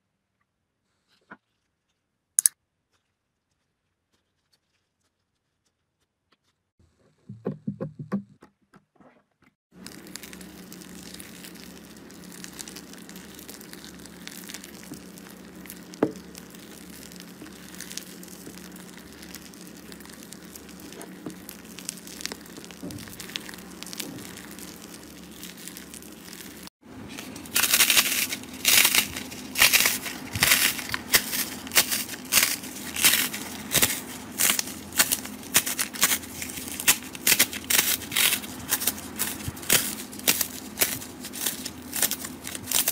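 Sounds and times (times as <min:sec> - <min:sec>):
slime crust crackling: 0:09.7 - 0:42.9
slime squish: 0:09.8 - 0:42.9
spatula stirring beaded slime: 0:09.8 - 0:42.9.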